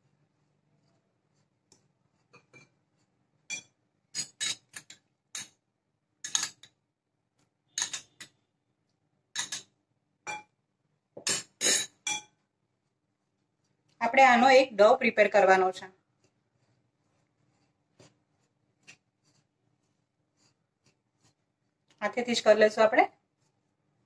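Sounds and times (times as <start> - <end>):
spoon clinking against glass bowls: 3.5 - 5.5.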